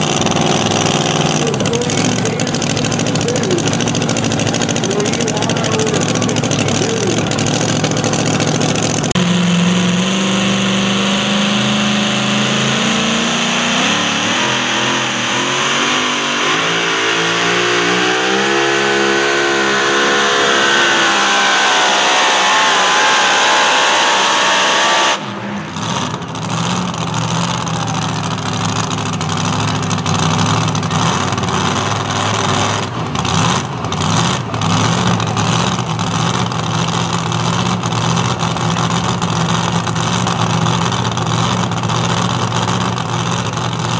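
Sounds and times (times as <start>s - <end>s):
engine idling unevenly: 0.0s - 24.2s, 25.2s - 43.9s
supercharged truck engine under load: 0.0s - 43.9s.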